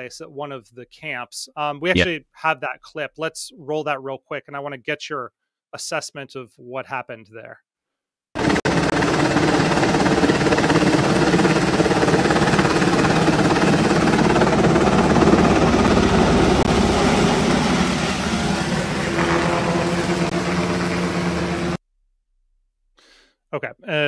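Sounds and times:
helicopter hovering: 8.4s - 21.8s.

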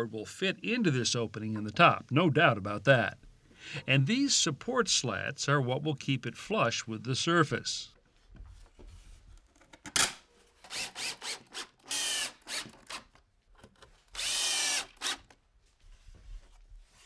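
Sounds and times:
cordless drill driving screws: 10.6s - 13.1s, 14.1s - 15.4s.

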